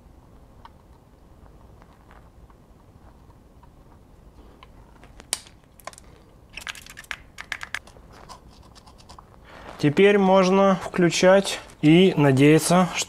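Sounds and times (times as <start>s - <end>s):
hands clicking speaker parts: 5.0s - 9.2s.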